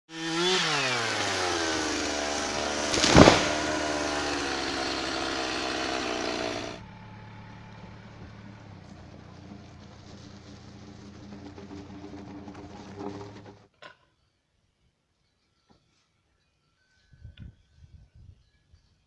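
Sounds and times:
engine running: 0:00.3 - 0:13.7
loud thump: 0:02.9 - 0:03.8.

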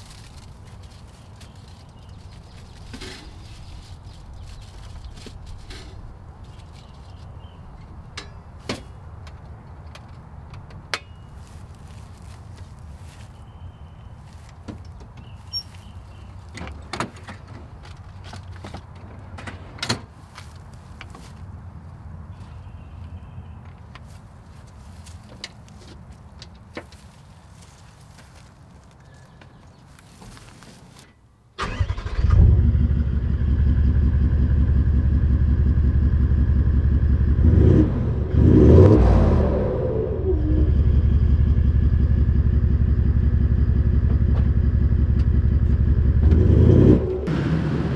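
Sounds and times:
diesel engine starting and idling: 0:31.6 - 0:47.9
steady low rumble: 0:32.4 - 0:47.9.

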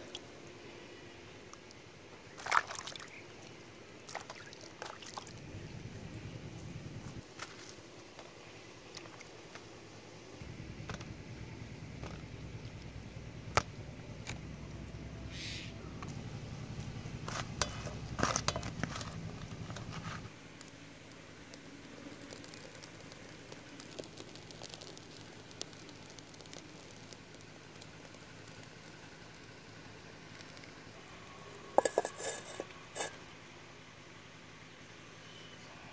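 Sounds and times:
small fire crackling: 0:03.1 - 0:35.6
steady low rumble: 0:05.3 - 0:07.2, 0:10.4 - 0:20.3
rustling: 0:31.8 - 0:33.2.

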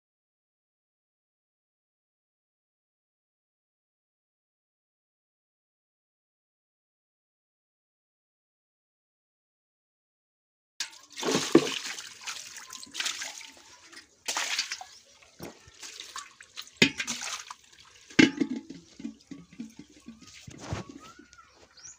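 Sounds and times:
water splashing on wet floor: 0:10.8 - 0:20.5.

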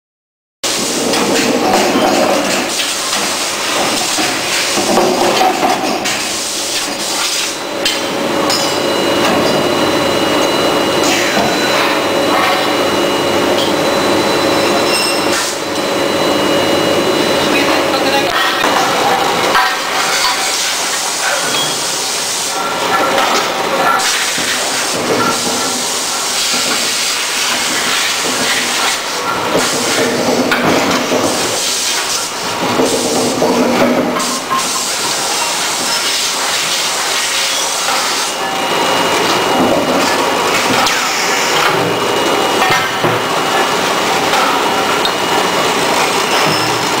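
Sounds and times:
hissing forging machinery: 0:00.6 - 0:47.0.

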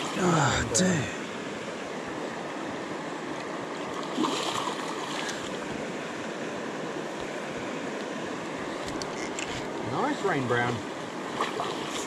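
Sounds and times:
river flowing: 0:00.0 - 0:12.0
splash: 0:03.9 - 0:05.5, 0:11.3 - 0:12.0.

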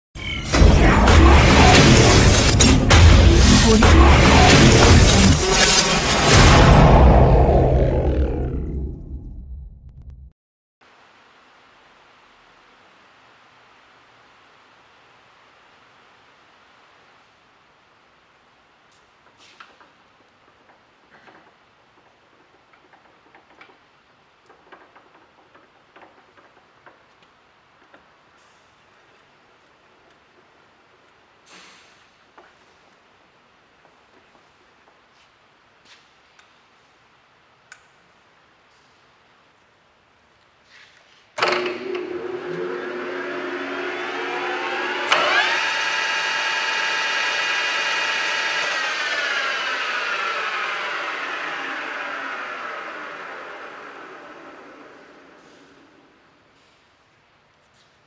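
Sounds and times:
lathe click: 0:41.4 - 0:53.7
lathe spindle geared whine: 0:41.4 - 0:55.4.

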